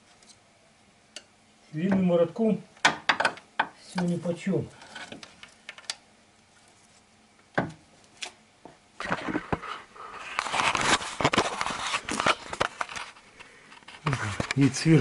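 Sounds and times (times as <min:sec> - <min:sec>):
rustling scraping and knocking: 0:04.0 - 0:05.8, 0:09.0 - 0:14.9.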